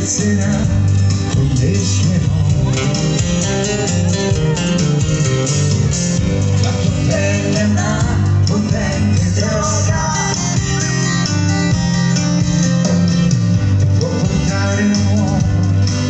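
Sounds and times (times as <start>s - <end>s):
live band playing pop-rock: 0.0s - 16.0s.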